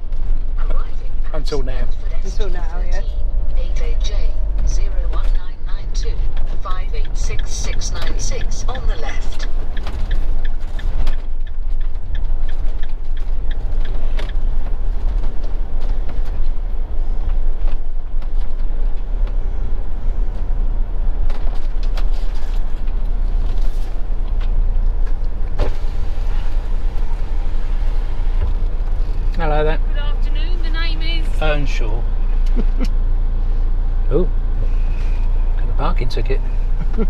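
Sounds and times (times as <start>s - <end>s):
engine and road rumble: 0.0s - 37.0s
sharp clicks in cab: 4.5s - 16.4s.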